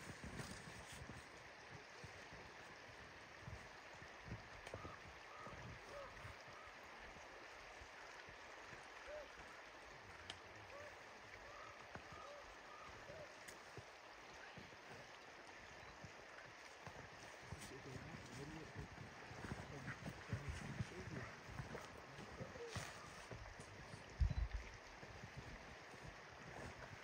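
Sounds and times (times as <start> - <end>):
river water flowing: 0.0 - 27.0
short faint calls: 17.5 - 23.4.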